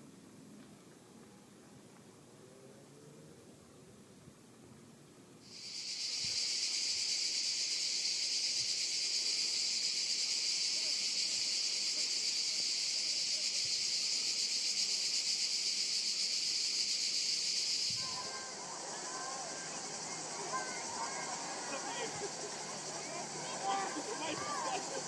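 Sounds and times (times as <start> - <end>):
cicadas buzzing: 5.4 - 25.0.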